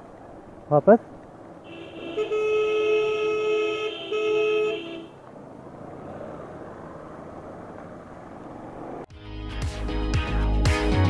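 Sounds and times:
wet-road traffic: 0.0 - 9.1
two-note vehicle horn blasts: 1.7 - 5.2.

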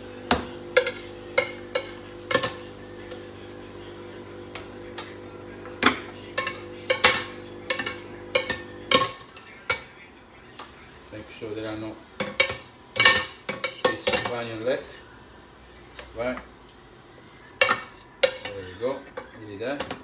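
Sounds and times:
ladle clanking on sieve and pot: 0.3 - 2.7, 5.8 - 9.9, 12.2 - 14.4, 17.6 - 20.0.

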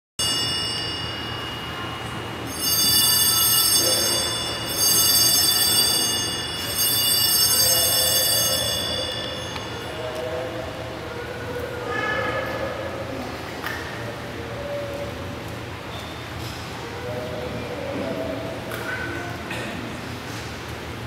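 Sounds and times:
small altar bells jangling: 0.2 - 10.9.

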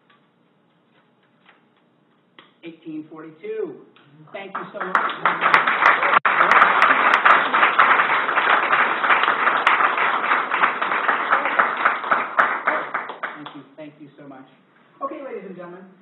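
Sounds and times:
audience applauding: 4.4 - 13.7.

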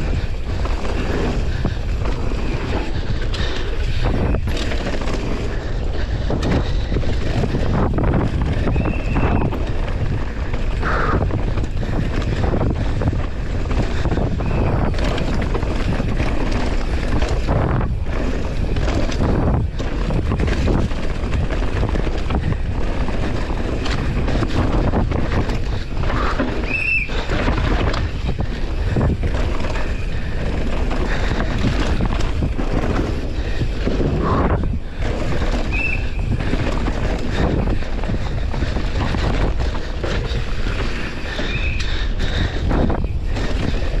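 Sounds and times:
bike knocks and rattles: 0.0 - 44.0
bike tyres and frame rumbling: 0.0 - 44.0
wind buffeting microphone: 0.0 - 44.0.

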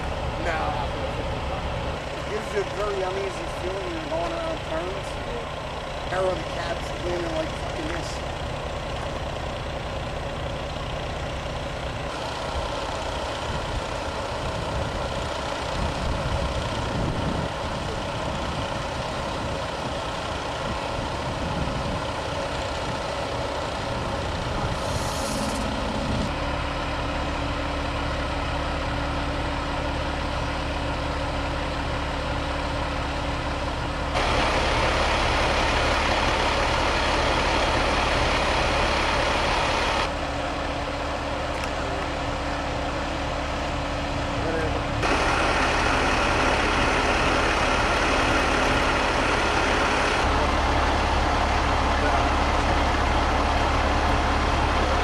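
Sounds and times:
diesel engine idling: 0.0 - 55.0
air hiss: 24.8 - 25.9.

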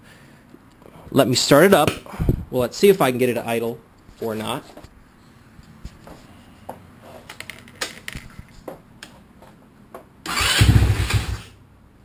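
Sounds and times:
scooter engine firing: 10.3 - 11.5.

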